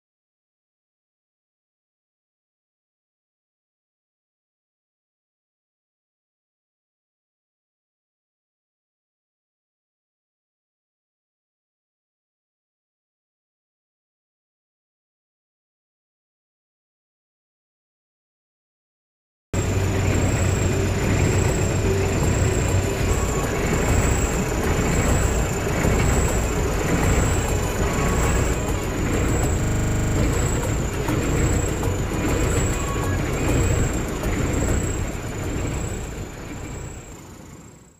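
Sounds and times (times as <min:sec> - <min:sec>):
boat engine rumbling: 0:19.6 - 0:37.8.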